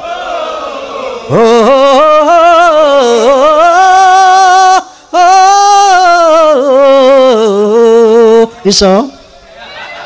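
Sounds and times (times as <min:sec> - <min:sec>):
man singing solo: 0:01.3 - 0:08.6.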